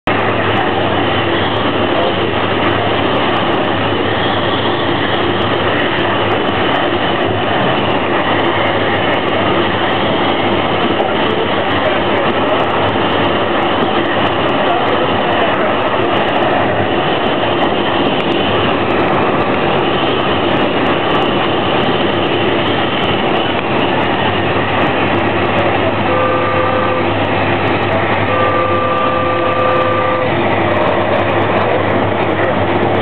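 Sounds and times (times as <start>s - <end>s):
train wheels rumbling on track: 0.0s - 33.0s
steady tone: 15.4s - 33.0s.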